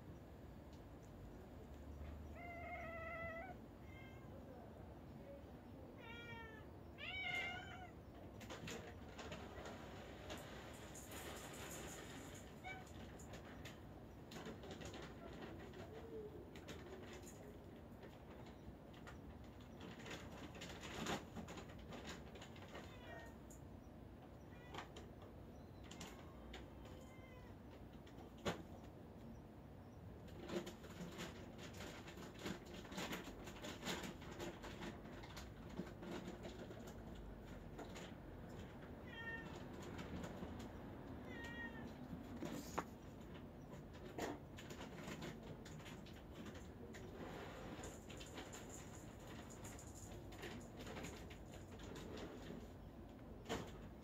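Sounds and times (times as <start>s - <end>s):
cat meowing: 2.2s - 4.6s, 5.9s - 8.0s, 22.8s - 23.4s, 24.4s - 24.9s, 26.8s - 27.6s, 39.0s - 39.7s, 41.2s - 42.1s.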